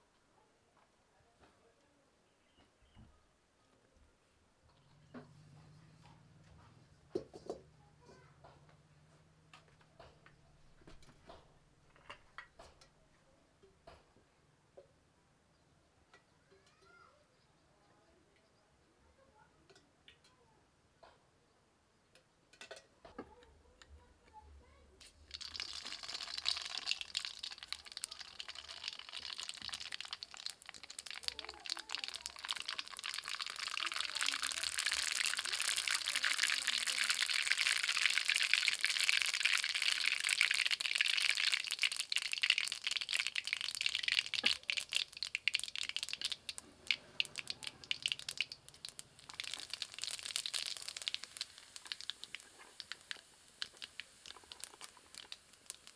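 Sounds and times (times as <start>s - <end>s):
oil sizzling and crackling: 25.0s - 55.9s.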